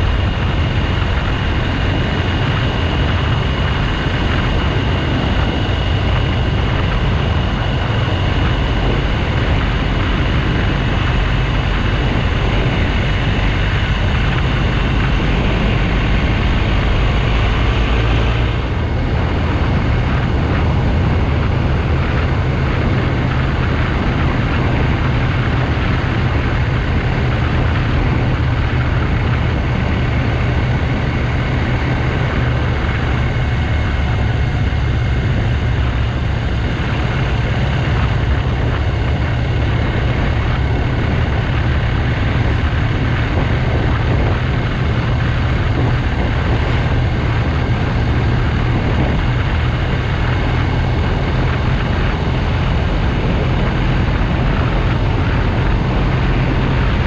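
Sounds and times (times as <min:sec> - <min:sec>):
motorcycle engine cruising: 0:00.0 - 0:57.0
wind and road noise: 0:00.0 - 0:57.0.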